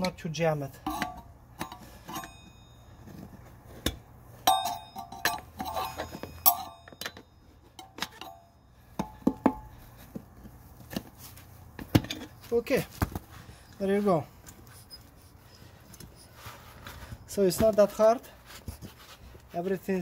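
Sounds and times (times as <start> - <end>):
tire spoon clinking on metal rim: 0.0 - 9.8.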